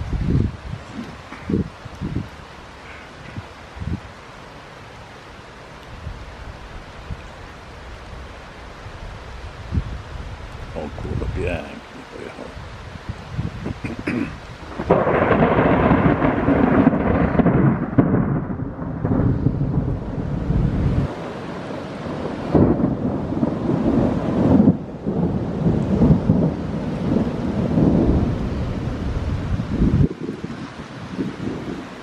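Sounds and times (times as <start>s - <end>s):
thunder cracking and rumbling: 10.7s - 21.1s, 22.0s - 31.9s.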